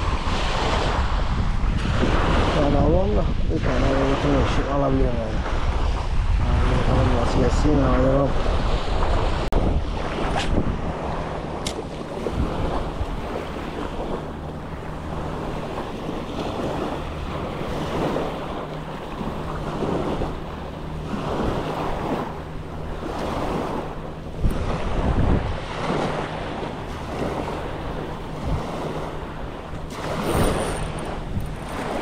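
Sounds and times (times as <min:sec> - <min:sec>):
wind buffeting microphone: 0:00.0 - 0:32.0
small waves washing onto pebbles: 0:24.5 - 0:32.0.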